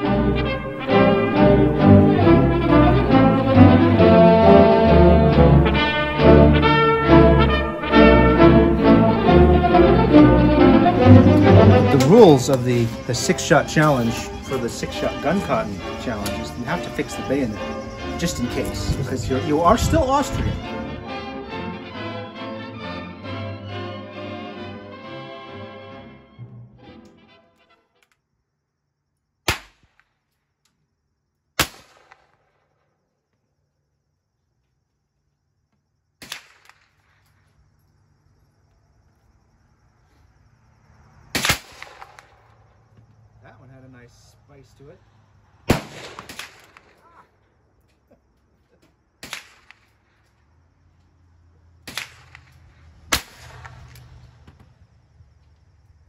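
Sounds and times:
sharp cracks: 29.4s - 30.4s, 31.6s - 32.7s, 36.2s - 37.4s, 41.3s - 42.6s, 45.6s - 47.3s, 49.2s - 50.2s, 51.8s - 54.4s
gunshots with ringing echo: 45.7s - 47.0s.

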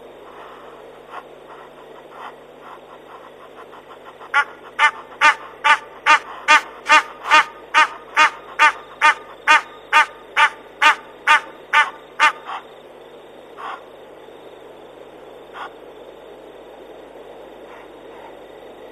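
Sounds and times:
bird calling: 0.3s - 12.7s, 13.5s - 13.9s.

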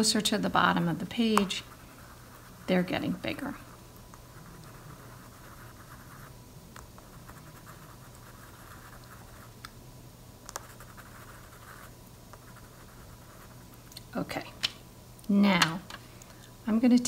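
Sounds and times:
crayon scratching on paper: 0.6s - 6.4s, 7.0s - 9.5s, 10.6s - 13.8s.

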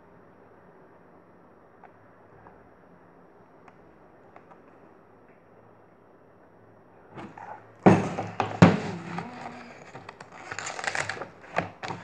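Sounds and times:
device handling knocks and rustling: 7.2s - 12.0s.

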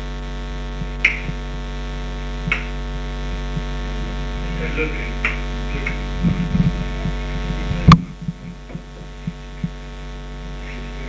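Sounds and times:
electrical mains hum: 0.0s - 11.0s
loud sharp click: 1.0s - 1.4s, 2.5s - 2.7s.

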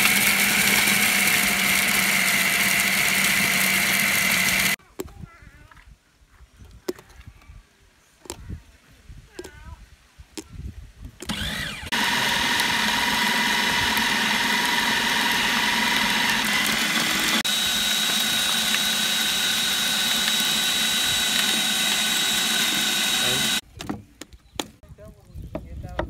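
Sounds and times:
food processor motor whining: 0.0s - 4.8s, 11.2s - 23.6s.

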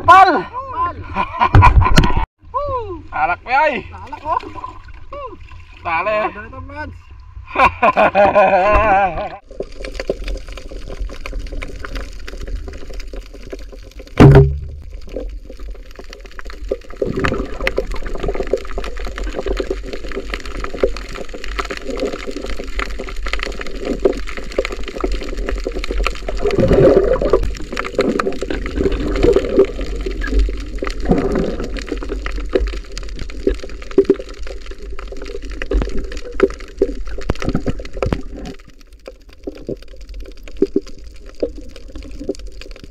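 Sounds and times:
underwater rumble with crackling: 1.1s - 2.3s, 7.1s - 42.9s
swells of water noise: 9.3s - 42.9s
sharp loud knock: 14.2s - 14.8s.

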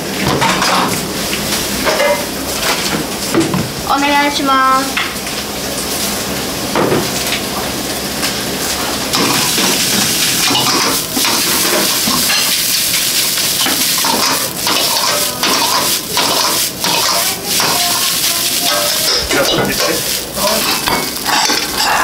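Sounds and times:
hiss of frying: 0.0s - 22.0s
metal ladle scraping a wok: 10.5s - 22.0s.

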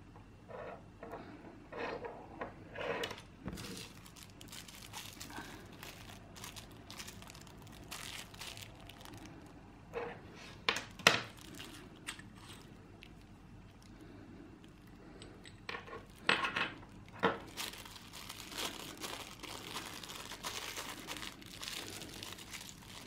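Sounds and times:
plastic bag crinkling: 3.5s - 9.6s, 10.9s - 14.0s, 16.0s - 23.0s.

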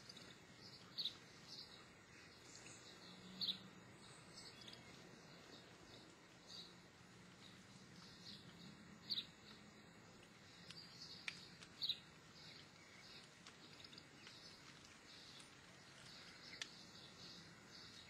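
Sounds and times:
faint ticks: 7.3s - 18.0s.

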